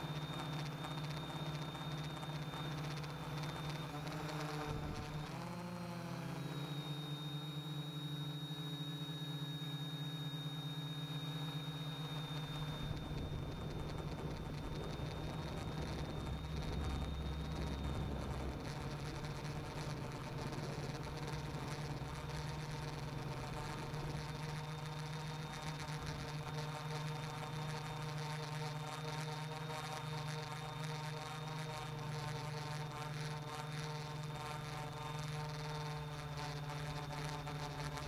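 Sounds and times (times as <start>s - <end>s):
faint high-pitched whine: 0.0s - 38.0s
drone propellers humming: 11.2s - 28.0s.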